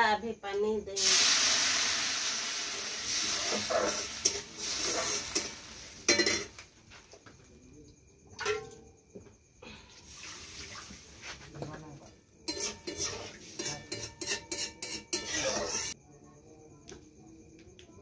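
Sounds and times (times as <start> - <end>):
batter sizzling in hot wok: 0.9 - 6.7, 10.0 - 11.7, 12.4 - 16.0
utensil clink: 5.4 - 6.5, 12.5 - 16.0.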